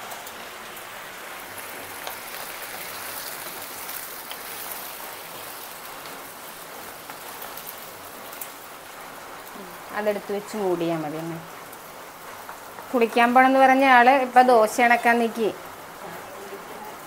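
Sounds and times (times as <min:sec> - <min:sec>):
batter sizzling on griddle: 0:00.0 - 0:10.0, 0:11.4 - 0:15.0.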